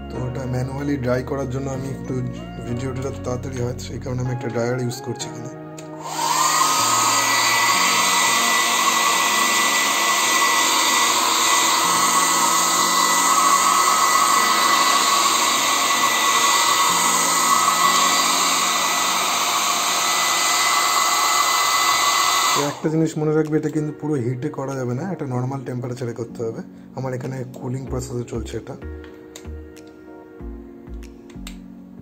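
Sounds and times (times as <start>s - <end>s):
hair dryer blowing: 5.9s - 23.0s.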